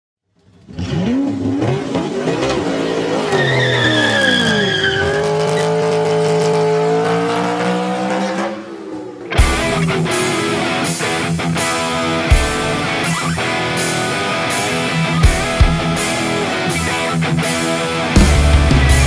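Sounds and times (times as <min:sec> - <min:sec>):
vehicle engine revving: 0:00.4 - 0:19.0
high steady squeal: 0:02.2 - 0:05.9.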